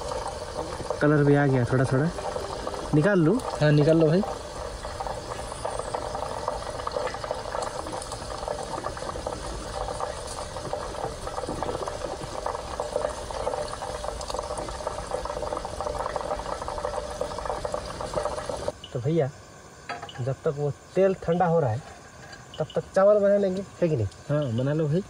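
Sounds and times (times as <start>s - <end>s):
hot oil bubbling and crackling: 0.0s - 25.0s.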